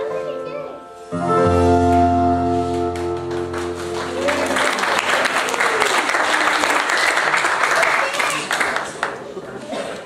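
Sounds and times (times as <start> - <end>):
held musical chord: 0.0 - 5.4
crowd applause: 2.9 - 10.0.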